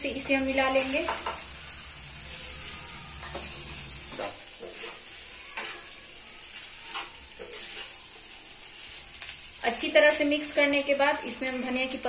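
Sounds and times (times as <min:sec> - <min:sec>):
sauce sizzling in a pan: 0:00.0 - 0:12.0
spoon scraping a pan: 0:03.1 - 0:09.3.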